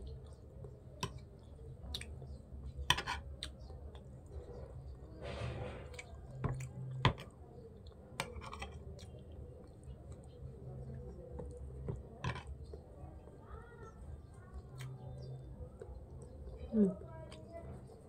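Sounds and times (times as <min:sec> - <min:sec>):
chewing food: 0:00.0 - 0:18.0
cutlery clicking on plate: 0:02.9 - 0:03.2.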